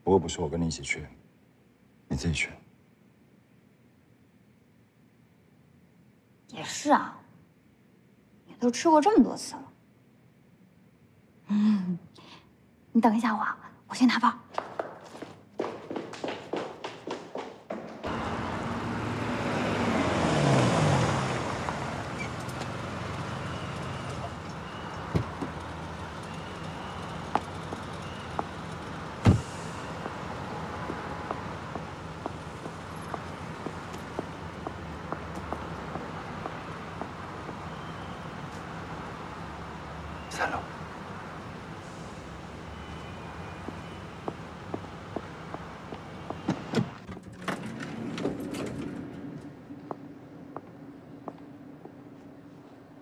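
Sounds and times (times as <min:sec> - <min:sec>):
footsteps tapping: 0:14.5 - 0:18.1, 0:30.8 - 0:37.6
car door thump: 0:29.2 - 0:29.5
elevator doors sliding: 0:45.5 - 0:49.9.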